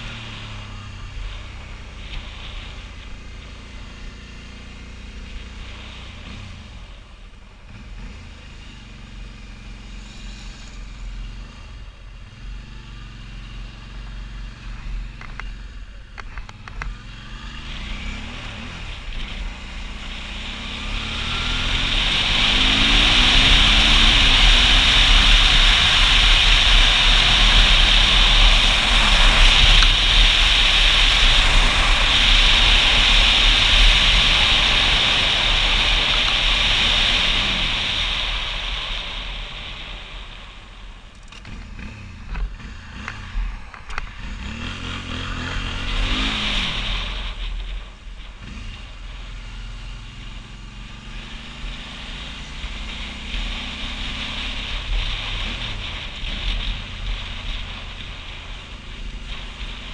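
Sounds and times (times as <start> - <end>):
motorcycle engine revving: 0.0 - 59.9
wind rushing over microphone: 20.6 - 41.1.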